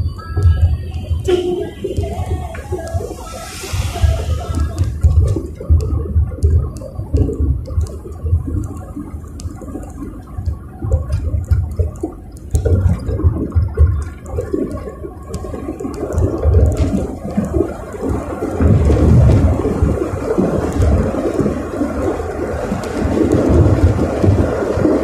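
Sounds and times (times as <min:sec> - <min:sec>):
road and wind noise in car: 0:00.0 - 0:25.0.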